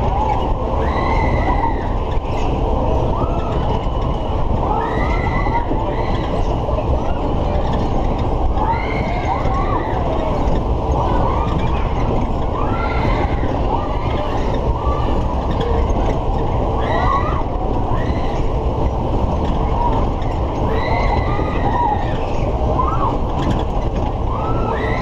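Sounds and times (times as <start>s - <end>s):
fairground ride rumble: 0.0s - 25.0s.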